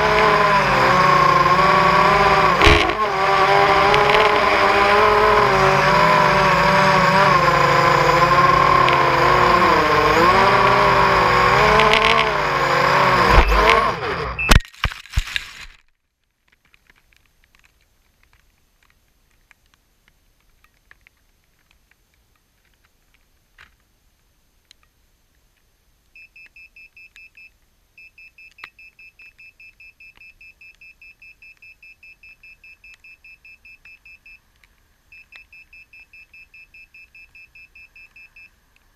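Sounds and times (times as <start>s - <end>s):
buzzer beeping: 0.0s - 5.7s, 13.2s - 14.5s
drone motors whining: 0.0s - 14.6s
drone crash knock: 2.5s - 3.3s.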